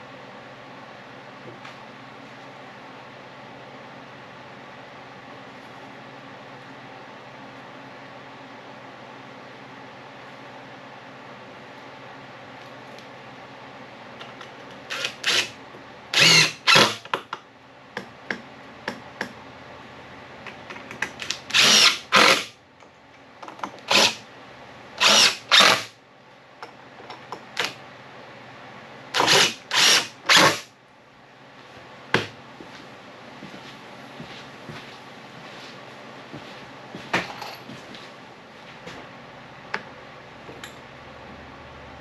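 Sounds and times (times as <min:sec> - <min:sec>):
cordless drill drilling into wood: 0:14.9 - 0:15.5, 0:16.2 - 0:17.0, 0:21.5 - 0:22.5, 0:23.9 - 0:24.2, 0:25.0 - 0:25.9, 0:29.2 - 0:30.6.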